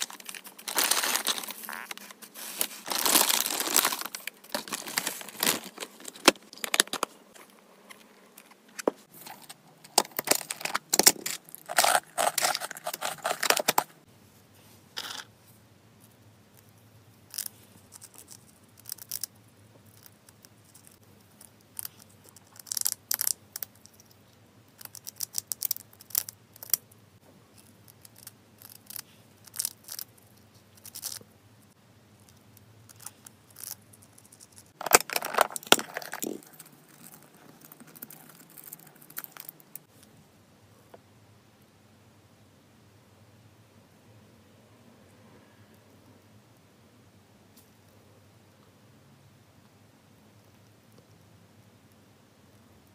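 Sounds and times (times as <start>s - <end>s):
plastic containers crackling: 0.0s - 7.6s, 8.6s - 14.0s, 34.8s - 39.8s.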